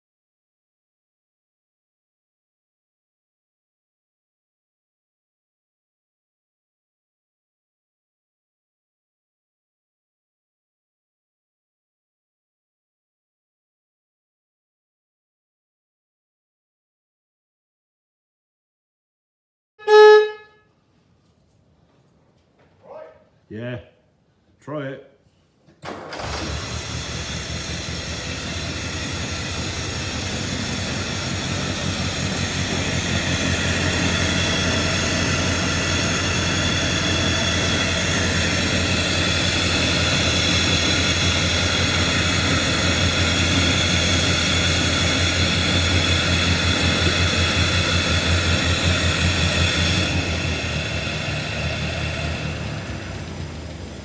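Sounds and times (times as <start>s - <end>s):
petrol engine starting and idling: 25.8s - 54.0s.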